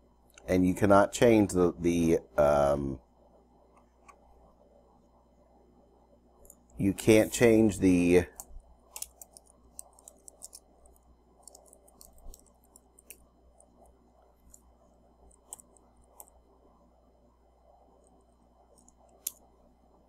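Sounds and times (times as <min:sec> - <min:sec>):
low room hum: 0:00.0 - 0:20.0
computer keyboard typing: 0:09.0 - 0:13.8.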